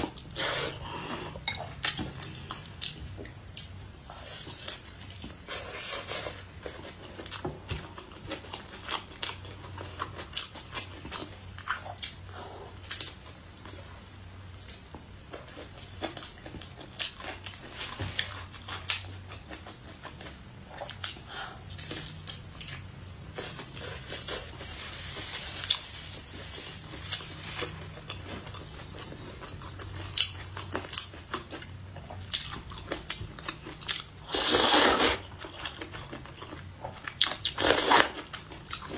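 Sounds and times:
person chewing crunchy bread: 3.6 - 13.8, 14.7 - 24.7, 25.6 - 38.9
slurping noodles: 34.3 - 35.2.

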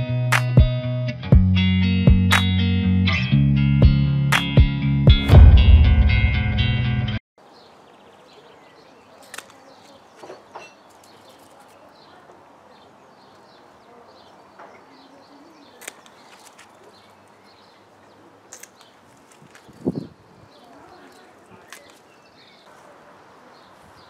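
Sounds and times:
birds chirping: 7.4 - 24.0.

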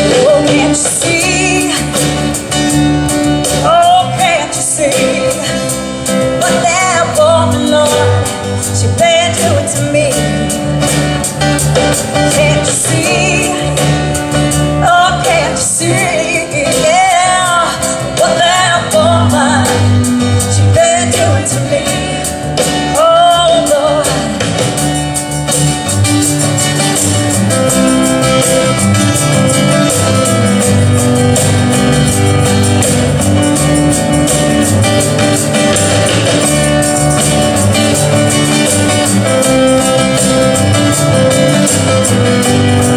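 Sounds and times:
woman singing: 0.0 - 2.3, 3.6 - 11.1, 12.1 - 24.6
acoustic guitar: 0.0 - 42.9
low bass notes: 0.0 - 42.9.

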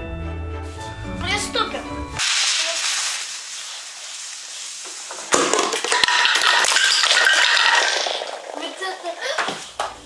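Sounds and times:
small things clattering: 2.2 - 10.0.

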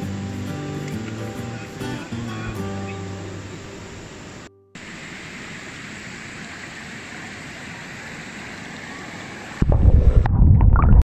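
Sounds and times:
underwater rumble and gurgling: 9.6 - 11.0.

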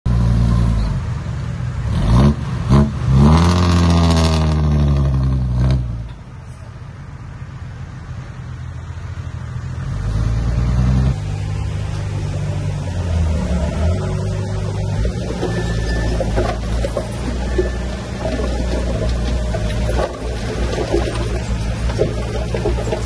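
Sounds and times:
engine revving: 1.8 - 6.0.

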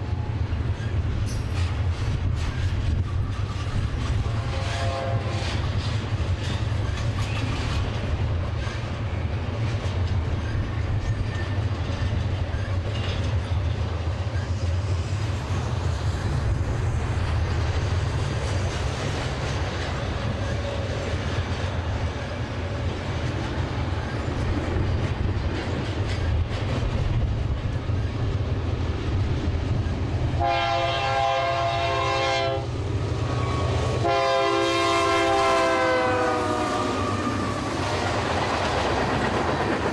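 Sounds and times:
freight train rumbling past: 0.0 - 39.9
locomotive air horn: 4.3 - 5.6, 30.4 - 32.7, 34.0 - 37.4.

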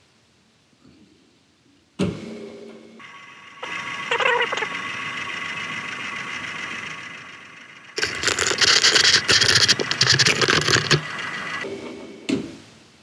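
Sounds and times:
motor hum: 3.0 - 11.7
milling machine rattling and grinding: 4.6 - 11.6.

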